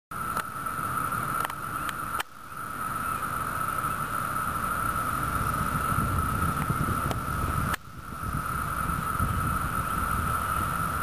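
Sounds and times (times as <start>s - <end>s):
cicadas droning: 0.1s - 11.0s
low rumble: 0.6s - 11.0s.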